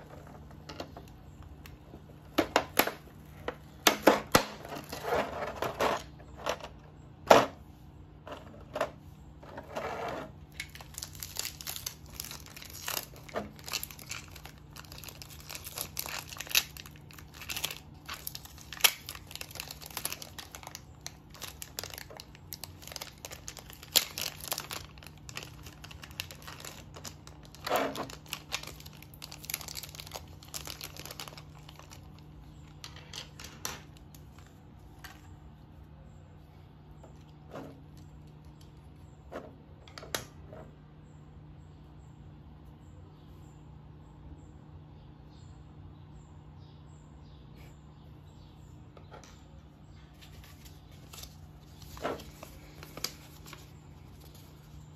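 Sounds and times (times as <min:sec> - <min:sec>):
plastic packaging crinkling: 0:09.6 - 0:35.3, 0:50.1 - 0:54.9.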